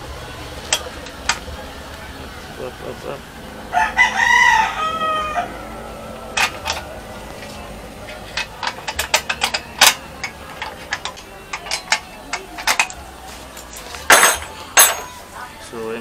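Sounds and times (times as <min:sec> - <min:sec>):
rooster crowing: 0:03.6 - 0:08.0
metal bracket clicking and clinking: 0:06.3 - 0:15.2.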